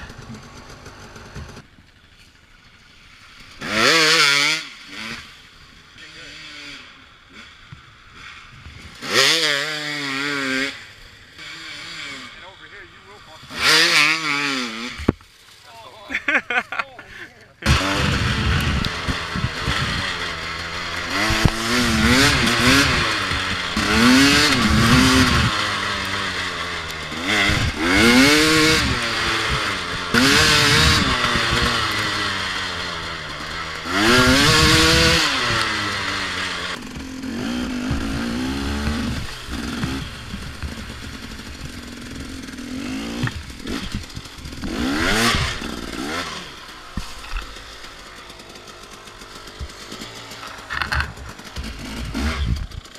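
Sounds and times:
dirt bike engine revving: 0:00.0 - 0:01.7, 0:03.2 - 0:15.1, 0:16.1 - 0:52.9.

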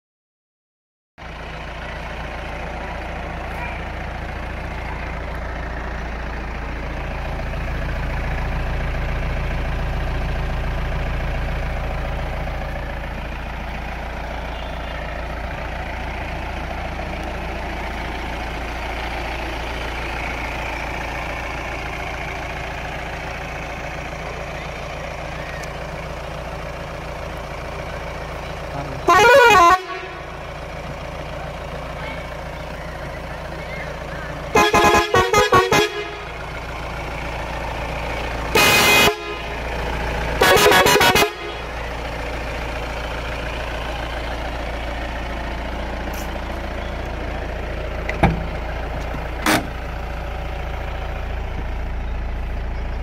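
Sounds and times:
diesel engine idling: 0:01.2 - 0:53.0
air horn blast: 0:29.0 - 0:30.3, 0:34.5 - 0:36.3, 0:38.5 - 0:39.6, 0:40.4 - 0:41.7.

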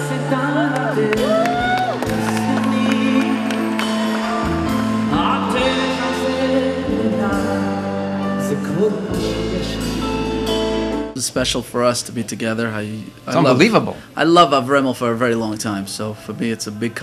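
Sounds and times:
live band playing: 0:00.0 - 0:11.2
man singing into microphone: 0:08.2 - 0:10.3.

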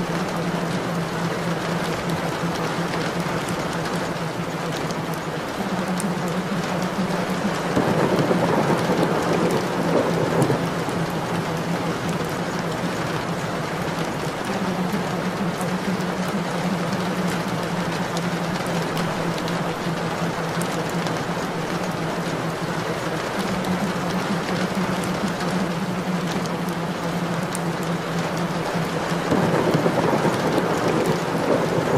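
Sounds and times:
rain: 0:00.0 - 0:31.9
thunder rolling: 0:06.2 - 0:13.3, 0:29.1 - 0:31.9.

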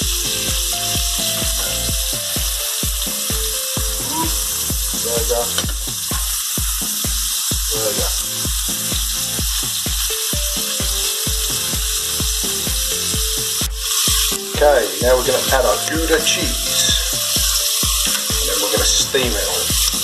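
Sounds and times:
background music with a beat: 0:00.0 - 0:20.0
food sizzling in a frying pan: 0:00.0 - 0:20.0
spatula flipping food: 0:15.2 - 0:20.0.

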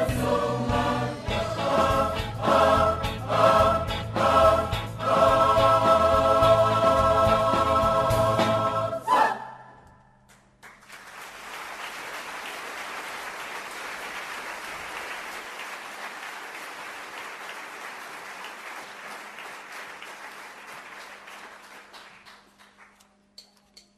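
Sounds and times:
audience applauding: 0:10.3 - 0:23.0.

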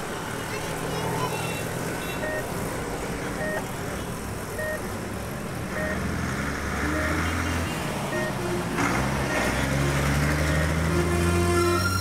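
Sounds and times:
road traffic din: 0:00.0 - 0:12.0
short beeps: 0:02.2 - 0:02.4, 0:04.6 - 0:04.8, 0:05.8 - 0:06.0, 0:08.1 - 0:08.4.

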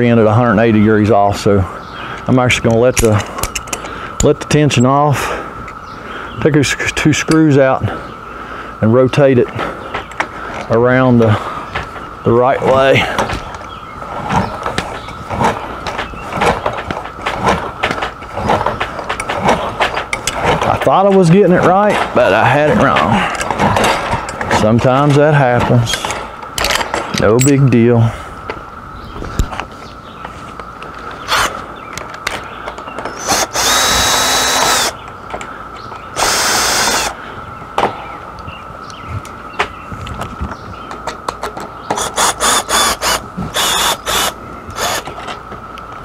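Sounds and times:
clicks and knocks of awning spring: 0:02.2 - 0:04.4, 0:14.3 - 0:27.7
cordless drill whining: 0:33.2 - 0:35.0, 0:36.2 - 0:37.2, 0:42.0 - 0:45.0.

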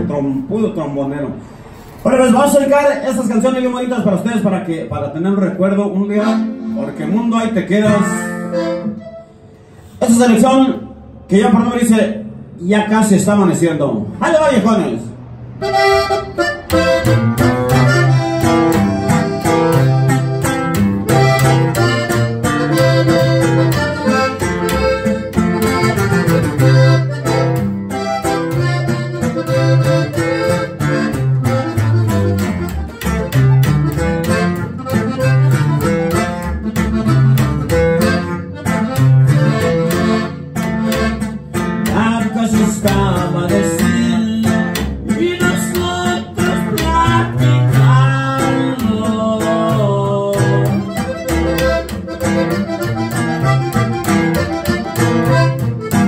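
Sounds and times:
plucked upright bass: 0:05.4 - 0:09.4, 0:15.6 - 0:56.0
accordion melody: 0:05.4 - 0:11.7, 0:15.4 - 0:56.0
strummed acoustic guitar: 0:15.6 - 0:56.0.

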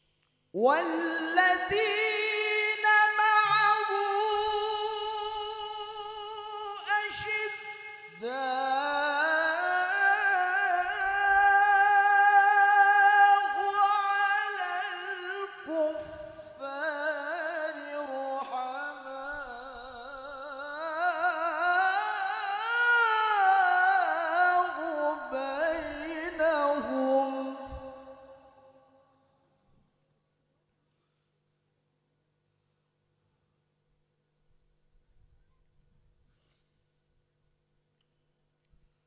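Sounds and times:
man reciting melodically: 0:00.6 - 0:28.7
short breath: 0:36.3 - 0:37.0.

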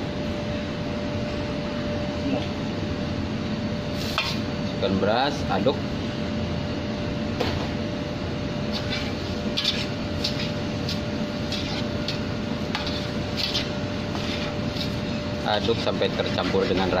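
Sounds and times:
steady hum: 0:00.0 - 0:17.0
metal spatula scraping a pot: 0:08.7 - 0:10.6, 0:11.5 - 0:12.2, 0:12.8 - 0:15.0.

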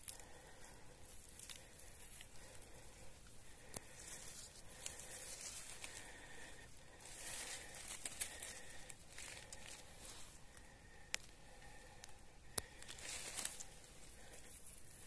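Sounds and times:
leaf litter rustling: 0:04.0 - 0:10.3, 0:12.8 - 0:14.4.

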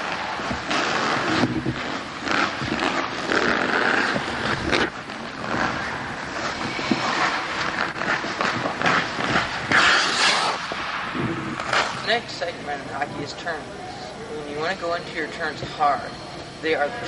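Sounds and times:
skate blades scraping on ice: 0:00.0 - 0:12.4.

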